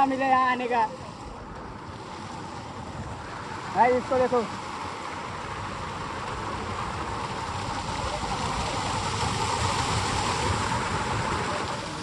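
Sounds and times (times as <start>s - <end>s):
waterfall rushing over rocks: 0.0s - 12.0s.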